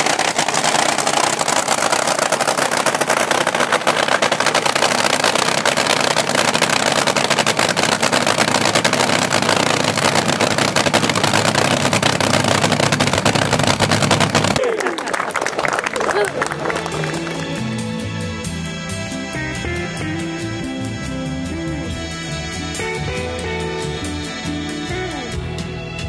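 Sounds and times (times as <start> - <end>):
dragster engine idling loudly: 0.0 - 14.6.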